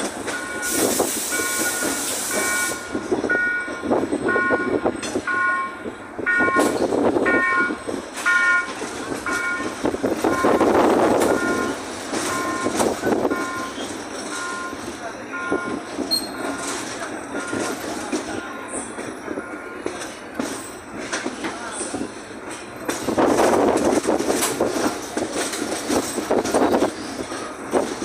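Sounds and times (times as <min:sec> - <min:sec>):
train wheels rumbling on rails: 0:00.0 - 0:28.0
level crossing warning beeps: 0:00.2 - 0:20.1.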